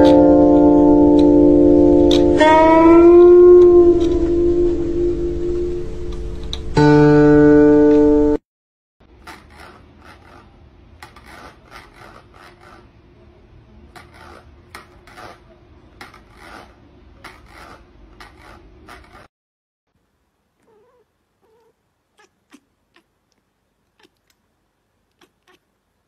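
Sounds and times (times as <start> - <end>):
cat claws scraping plastic bucket: 9.2 - 12.9, 13.9 - 19.3
faint cat mews: 20.6 - 23.1.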